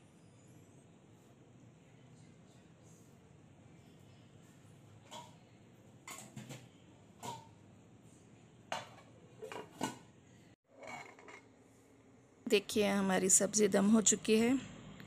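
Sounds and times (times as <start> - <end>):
metal cookware clinking: 5.0 - 5.4, 7.2 - 7.6, 8.7 - 10.0.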